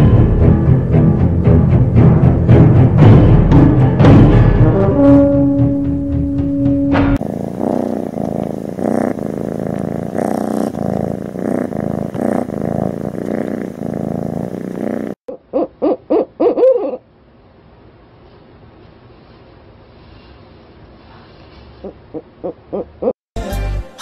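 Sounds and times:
tiger pulsing rumble: 7.2 - 15.2
owl hooting: 15.3 - 17.0, 21.8 - 23.1.

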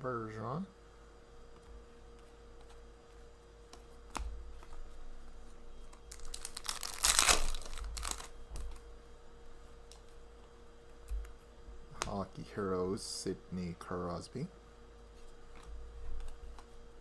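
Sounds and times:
crinkling rustle: 6.0 - 8.8.

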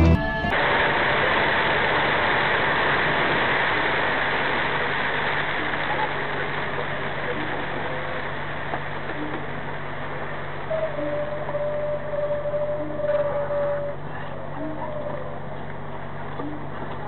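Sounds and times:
truck engine droning: 0.0 - 1.4
tyres on wet road: 0.0 - 11.9.

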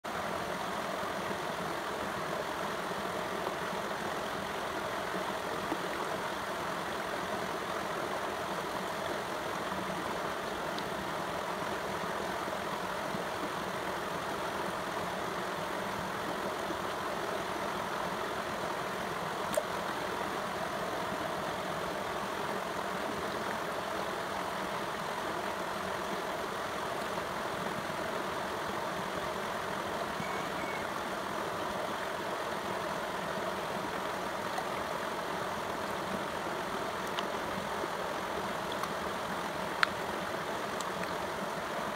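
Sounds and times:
stream flowing over stones: 0.0 - 41.9
faint click: 19.5 - 19.8.

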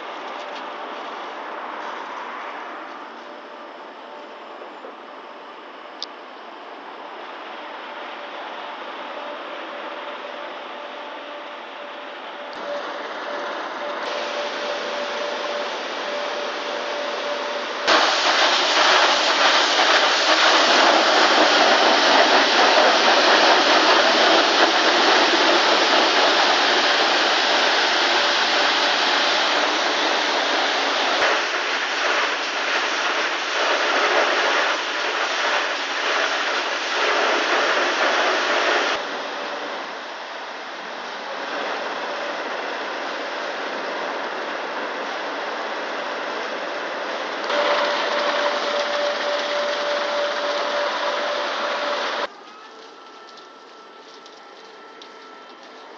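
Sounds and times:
car wash spray and brushes hissing: 12.4 - 39.1, 47.2 - 52.3.

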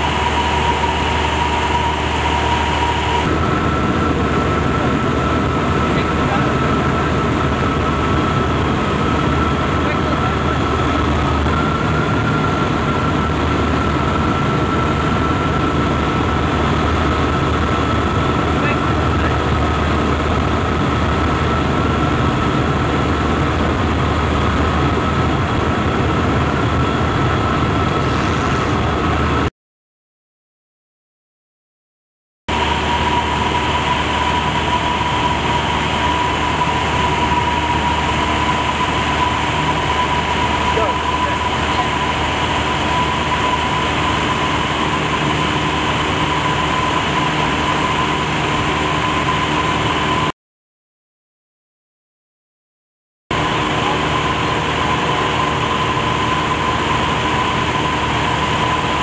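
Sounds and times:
propeller aircraft engine drone: 0.0 - 29.5, 32.5 - 50.3, 53.3 - 59.0
rushing airflow: 0.0 - 29.5.

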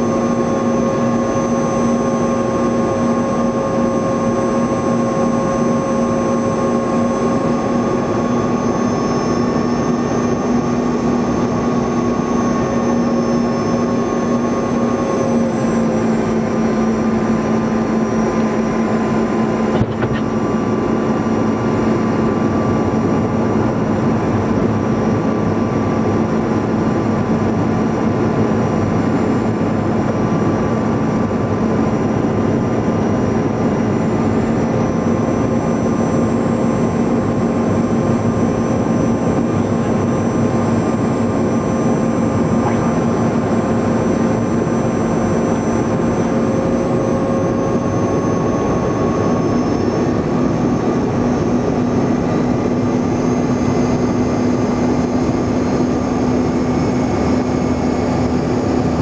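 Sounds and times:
high whining tones: 0.0 - 20.6, 40.0 - 53.2
airflow rush in cabin: 0.0 - 59.0
jet engine drone: 0.0 - 59.0
mid-pitched tone: 42.4 - 43.5.

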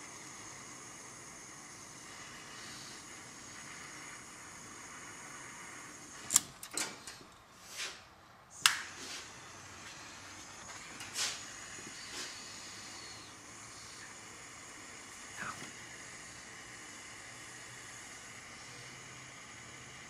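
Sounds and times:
faint steady hiss: 0.0 - 20.0
soldering tool clicks: 6.2 - 6.9.

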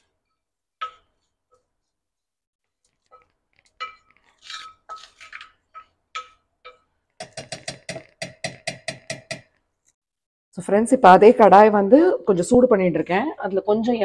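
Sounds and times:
spoon tapping on steel: 0.8 - 1.1, 3.1 - 4.1, 5.8 - 9.5
metal spoon scraping a steel pan: 2.9 - 7.9.

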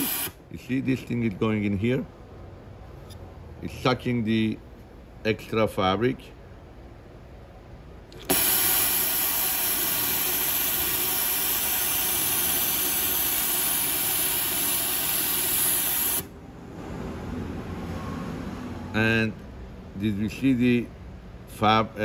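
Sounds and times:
air suction hiss: 0.0 - 0.4, 8.3 - 16.3.

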